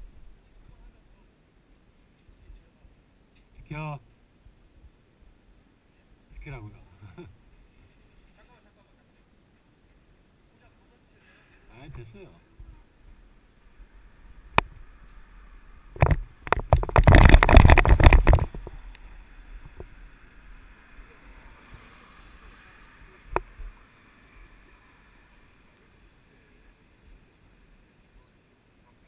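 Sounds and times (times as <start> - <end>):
bike tyres rolling: 13.2 - 25.6
mountain bike rattling clatter: 16.0 - 18.7.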